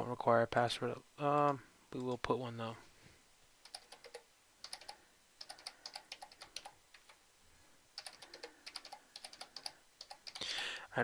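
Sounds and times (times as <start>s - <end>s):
computer keyboard typing: 3.6s - 7.2s, 8.0s - 10.5s.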